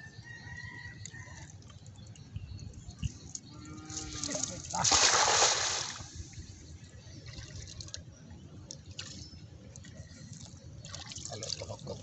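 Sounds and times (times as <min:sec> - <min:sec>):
water dripping and splashing: 0:03.0 - 0:06.1, 0:07.3 - 0:12.0
net splashing onto water: 0:04.0 - 0:06.1.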